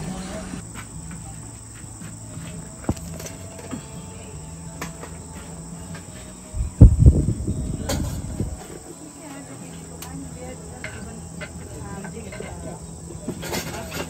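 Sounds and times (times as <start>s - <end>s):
crickets chirring: 0.0s - 14.0s
loud low rumble: 6.6s - 8.7s.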